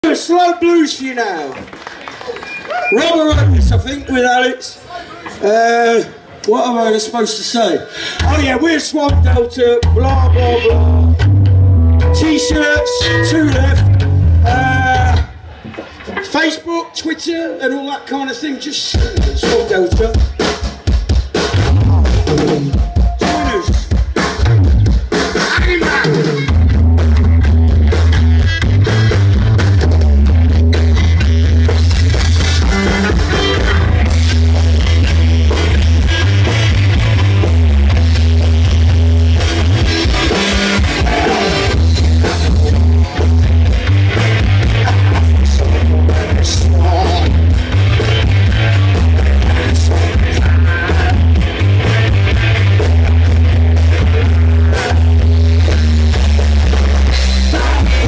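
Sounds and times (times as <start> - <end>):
drums: 0.0 - 6.0, 7.0 - 17.4, 18.0 - 58.0
bass guitar: 2.7 - 4.4, 8.0 - 16.4, 18.8 - 58.0
electric guitars: 9.1 - 16.4, 19.2 - 58.0
saxophone: 11.8 - 14.6.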